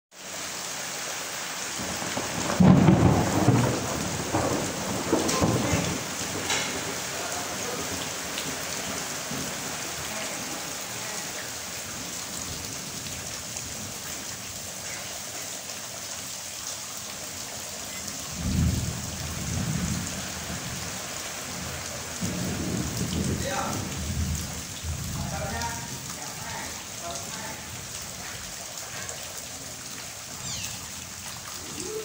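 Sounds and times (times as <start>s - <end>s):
heavy rain pouring: 0.1s - 32.0s
thunder rumbling: 1.8s - 14.0s, 18.2s - 27.9s.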